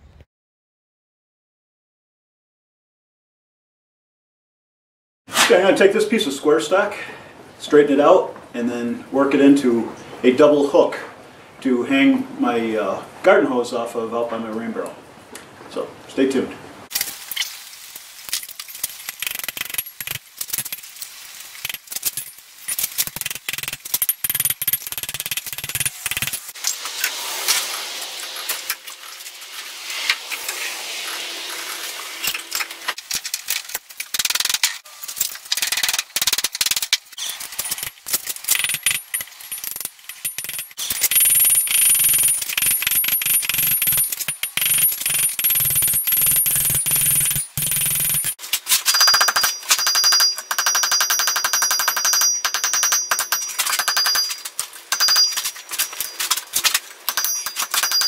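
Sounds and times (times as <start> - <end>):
anvil ringing: 41.3 - 56.3, 57.1 - 58.0.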